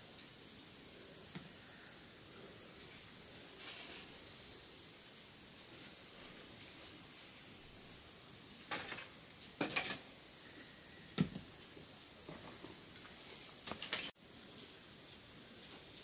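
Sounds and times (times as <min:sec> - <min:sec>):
faint steady hiss: 0:00.0 - 0:16.0
knocks and rustles: 0:08.6 - 0:10.1.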